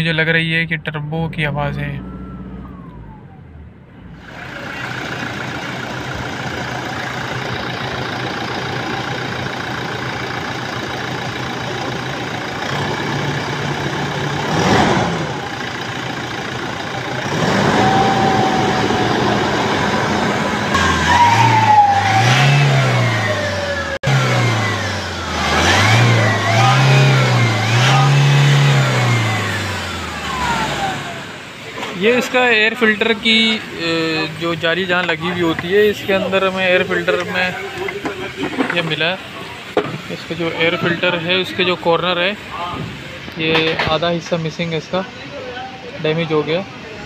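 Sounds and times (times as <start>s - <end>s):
diesel engine idling and revving: 0.0s - 47.0s
turbo whistle: 17.4s - 19.8s, 20.7s - 23.9s.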